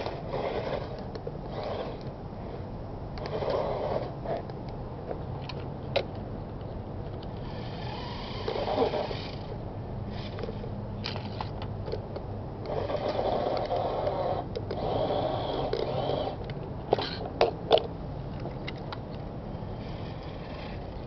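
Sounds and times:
toy truck motors whining: 0.0s - 2.6s, 3.2s - 4.5s, 7.4s - 11.6s, 12.6s - 17.3s, 19.5s - 21.0s.

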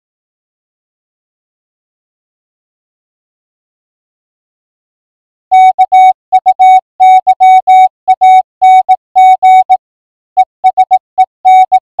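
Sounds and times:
morse code beeps: 5.5s - 9.8s, 10.4s - 12.0s.

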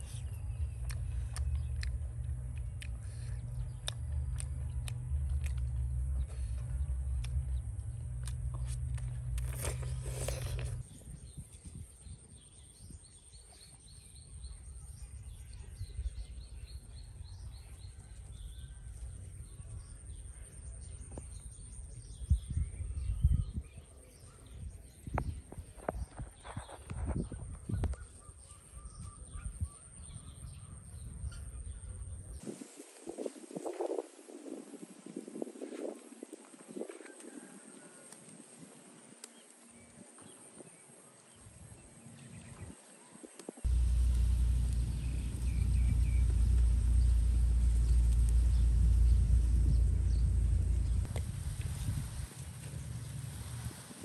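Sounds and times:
birds chirping: 0.0s - 32.4s, 39.3s - 53.4s
loud low rumble: 43.7s - 54.0s.

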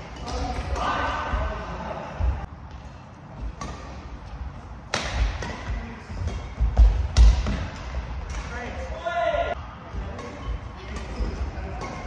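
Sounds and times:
rackets striking shuttlecock: 4.8s - 8.5s.

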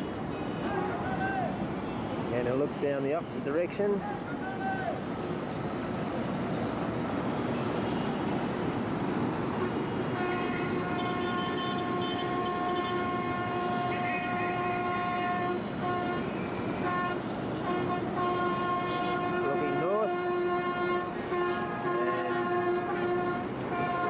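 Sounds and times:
street traffic: 0.0s - 24.0s
multi-tone horn: 10.2s - 24.0s.

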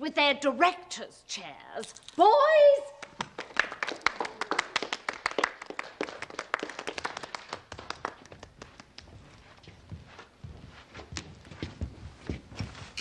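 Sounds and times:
people clapping: 3.0s - 9.5s.

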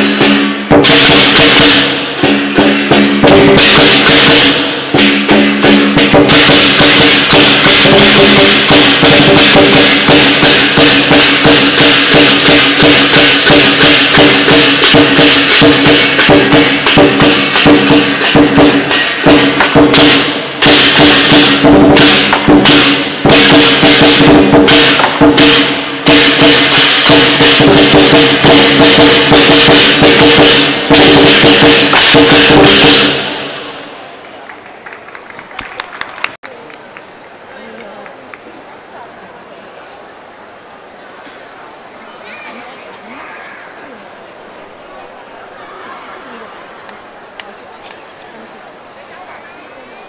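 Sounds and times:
drum playing fast rhythm: 0.0s - 33.9s
cymbals clashing: 0.0s - 34.0s.

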